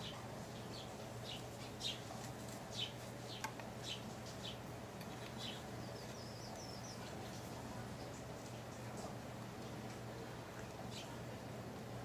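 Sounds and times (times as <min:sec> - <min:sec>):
small birds chirping: 0:00.0 - 0:12.0
steady low hum: 0:00.0 - 0:12.0.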